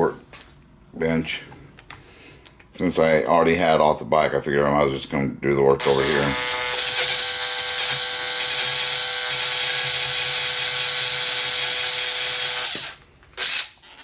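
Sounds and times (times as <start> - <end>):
electric drill running: 5.8 - 14.0.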